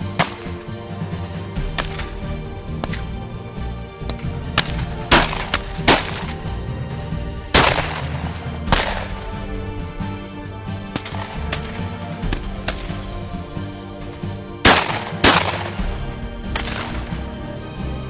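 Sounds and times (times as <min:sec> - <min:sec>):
shotgun shots: 0:00.0 - 0:00.6, 0:04.1 - 0:06.6, 0:07.4 - 0:13.7, 0:14.6 - 0:17.3
background music: 0:00.0 - 0:18.0.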